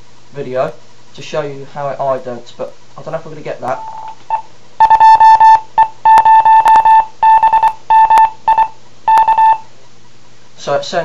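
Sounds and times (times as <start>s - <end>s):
morse code beeps: 3.8s - 9.7s.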